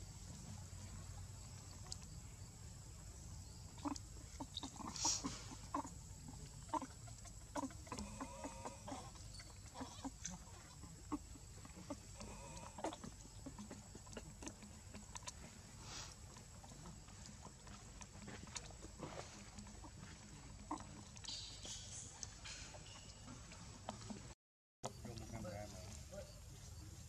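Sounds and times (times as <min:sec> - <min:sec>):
faint clicks: 0:01.5 - 0:02.2
baby monkey crying: 0:03.8 - 0:06.0, 0:06.6 - 0:14.6.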